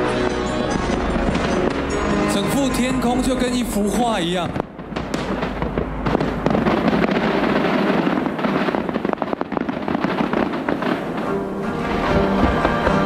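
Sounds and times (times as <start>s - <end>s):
fireworks crackling and popping: 0.0s - 13.0s.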